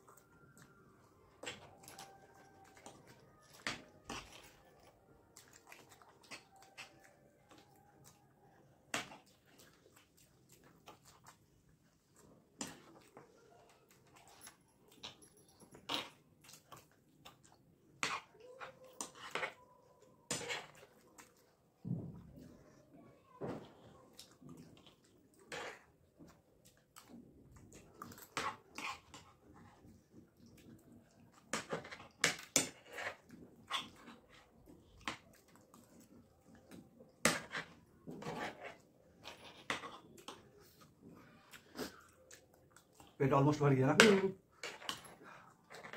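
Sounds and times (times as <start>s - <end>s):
wet chewing and slurping: 0.0s - 19.6s, 20.3s - 21.8s, 23.8s - 43.2s
spoons clicking and scraping plates: 0.5s - 8.1s, 31.3s - 35.8s, 43.2s - 45.9s.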